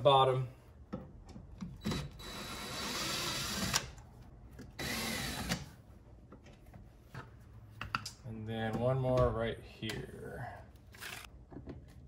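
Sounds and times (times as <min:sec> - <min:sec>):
cordless drill running: 0:01.9 - 0:03.9, 0:04.8 - 0:05.6.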